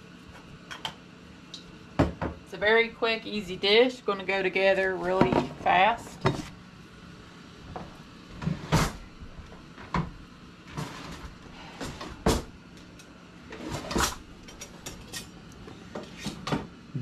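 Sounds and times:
drawer opening: 8.4s - 9.0s.

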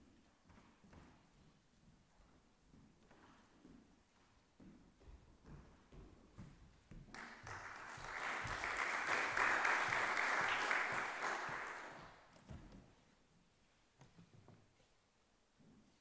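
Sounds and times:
audience applauding: 7.2s - 12.1s.

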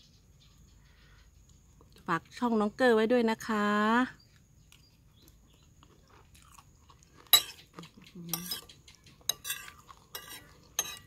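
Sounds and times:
spoon and fork clinking on bowl: 7.3s - 7.7s, 8.3s - 11.0s.

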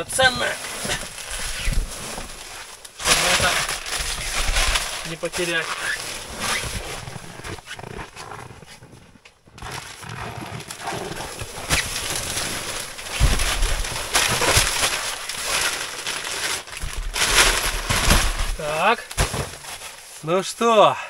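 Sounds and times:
nylon bags and tent fabric rustling: 0.0s - 20.5s
footsteps: 11.0s - 15.9s
dull thumps: 11.3s - 15.8s.

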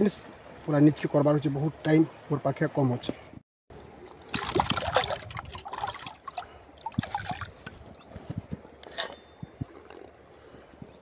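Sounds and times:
water splashing in a steel bowl: 4.1s - 7.7s.

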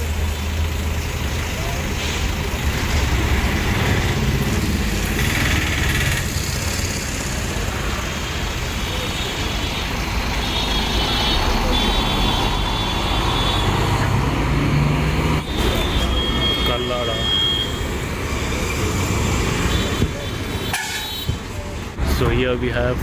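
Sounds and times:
diesel bus engines rumbling: 0.0s - 23.0s
high-pitched beeping tone: 15.4s - 17.9s.

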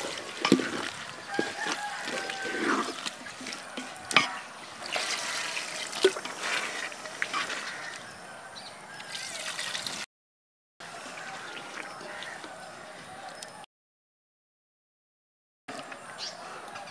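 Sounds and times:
curry sloshing and squelching: 0.0s - 7.9s.

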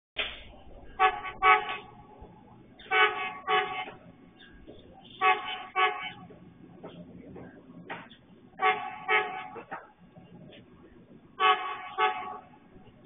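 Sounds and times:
train horn short blasts: 1.0s - 2.0s, 2.8s - 4.0s, 5.2s - 6.3s, 8.6s - 9.7s, 11.4s - 12.6s.

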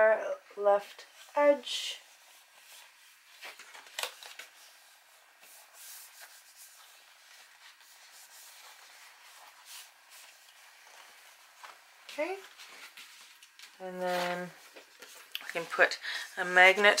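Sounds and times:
hands rubbing on card: 5.0s - 13.5s.

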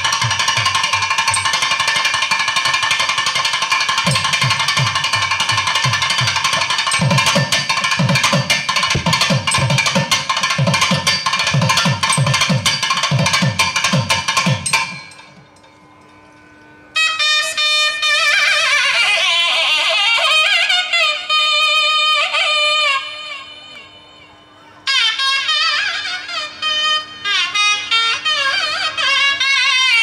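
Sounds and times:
drumming with deep bass strokes: 4.0s - 15.0s.

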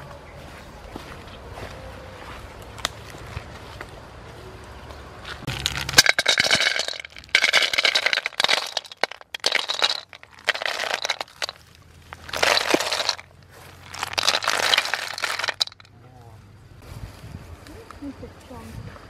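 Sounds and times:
snail shells rattling in metal basin: 5.5s - 15.9s.

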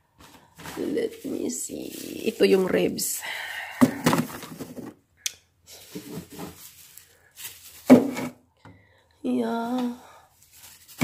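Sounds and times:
plastic packages rustling and scraping: 0.0s - 5.0s, 5.7s - 8.5s, 9.5s - 11.0s.

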